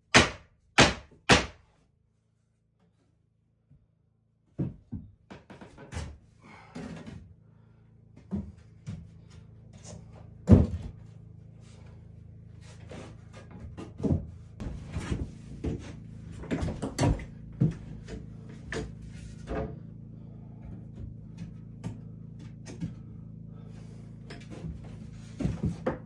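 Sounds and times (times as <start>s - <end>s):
wooden boards knocking and clattering: 13.4s - 19.8s, 24.3s - 26.0s.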